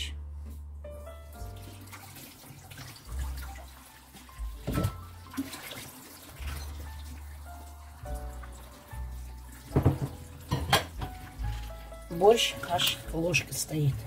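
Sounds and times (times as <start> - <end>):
pot simmering and bubbling: 1.3 - 14.0
knock: 9.7 - 11.2.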